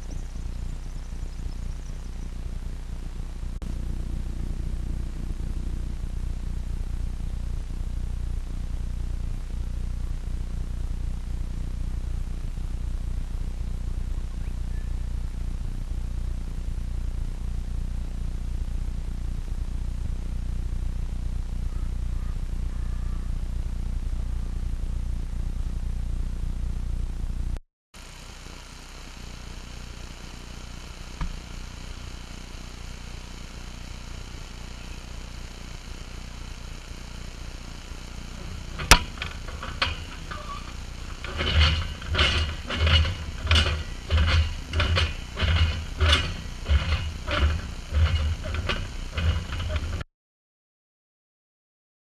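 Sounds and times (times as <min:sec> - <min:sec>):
steady low rumble: 0:00.0 - 0:27.6, 0:30.8 - 0:50.0
repeated knocks and clatters: 0:38.3 - 0:50.0.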